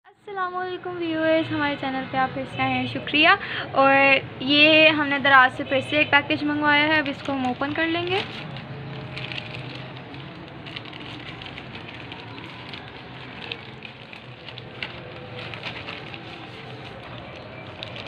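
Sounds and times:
plastic bag crinkling: 6.3 - 18.0.

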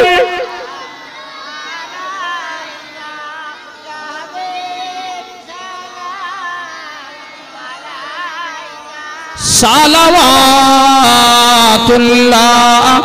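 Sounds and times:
loud voice singing close: 0.0 - 13.0
voices singing devotional song: 0.0 - 13.0.

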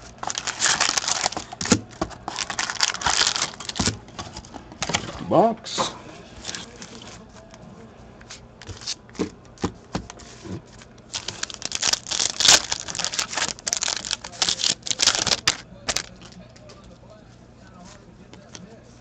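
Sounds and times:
foil wrapper tearing and crinkling: 0.0 - 5.0, 11.1 - 16.4.

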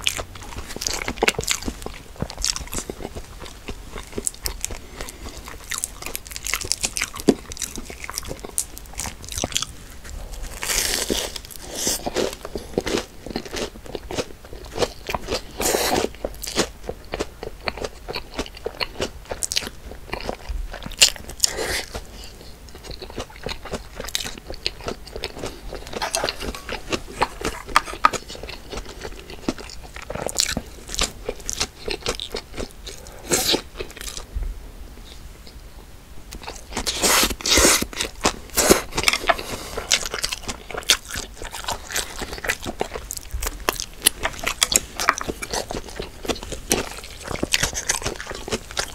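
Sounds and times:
person crunching and chewing food: 0.0 - 34.3, 36.3 - 48.9.

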